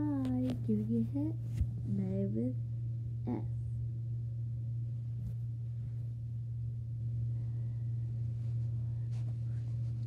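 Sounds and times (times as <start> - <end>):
steady low hum: 0.0 - 10.0
fabric rustling on microphone: 8.2 - 10.0.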